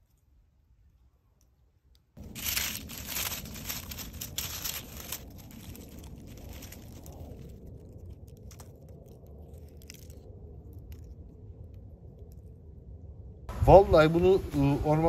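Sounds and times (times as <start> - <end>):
leaf litter crackling and rustling: 2.2 - 11.1.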